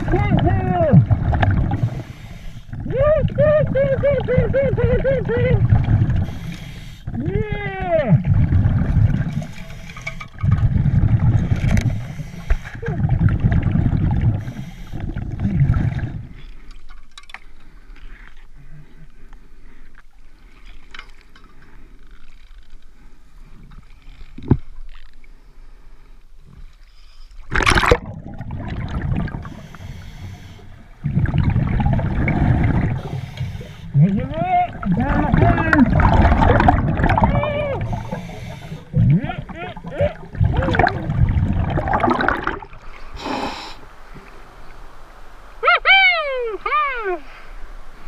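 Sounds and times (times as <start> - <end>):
diver exhaling bubbles: 1.0 - 6.5, 12.7 - 16.4, 27.5 - 34.1, 34.7 - 43.8.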